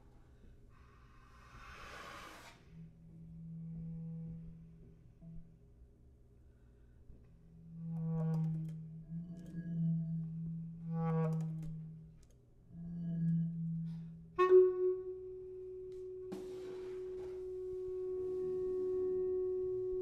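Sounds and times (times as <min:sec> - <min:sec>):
bass clarinet low notes: 0:07.6 - 0:12.0, 0:12.7 - 0:20.0
pure steady high note: 0:14.4 - 0:20.0.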